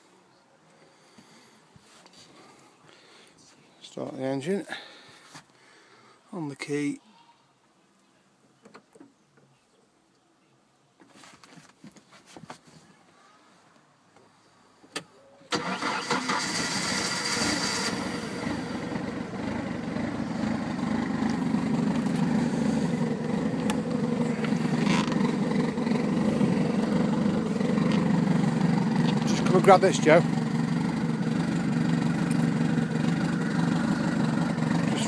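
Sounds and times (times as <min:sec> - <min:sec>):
boat engine starting and running: 0:15.6 - 0:35.0.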